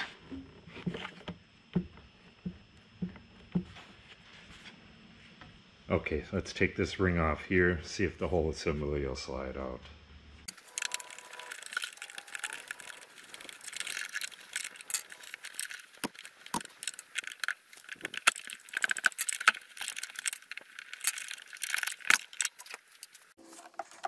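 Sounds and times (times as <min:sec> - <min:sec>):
plastic and metal parts rattling: 0:10.5 - 0:24.0.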